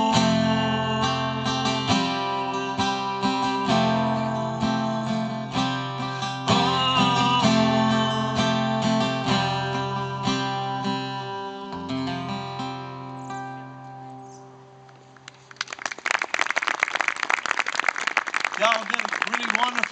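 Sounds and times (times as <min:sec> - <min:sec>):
acoustic guitar strummed: 0:00.0 - 0:15.2.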